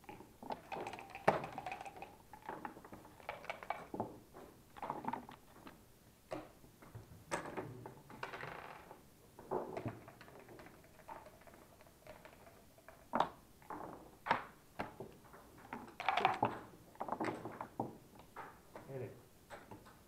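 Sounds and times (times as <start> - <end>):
game checkers clacking: 0.4 - 4.0, 8.2 - 8.9, 9.7 - 13.4, 15.7 - 17.6
dice shaken and thrown: 0.5 - 4.0, 15.9 - 16.6.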